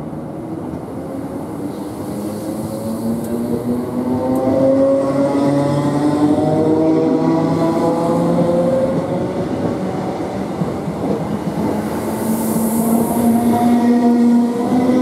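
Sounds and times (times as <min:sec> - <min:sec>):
high hiss: 0:11.8 - 0:13.8.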